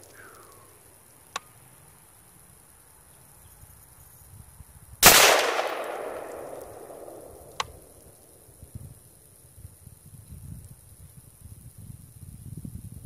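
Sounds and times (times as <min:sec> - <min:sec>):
rifle shot echoing: 0:05.0 - 0:08.1.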